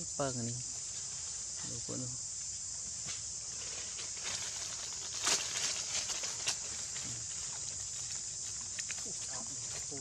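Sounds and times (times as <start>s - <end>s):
insects chirring: 0.0s - 10.0s
dry leaves crackling: 3.5s - 10.0s.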